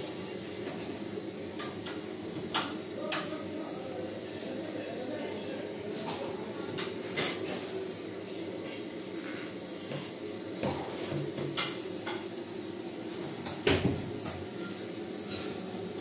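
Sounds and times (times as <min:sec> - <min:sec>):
plates and foil trays clinking: 0:05.9 - 0:08.0.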